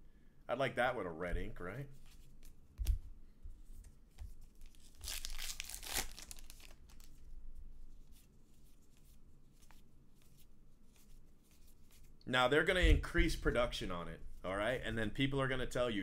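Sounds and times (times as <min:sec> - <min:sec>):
wrapper tearing: 0:04.6 - 0:07.2.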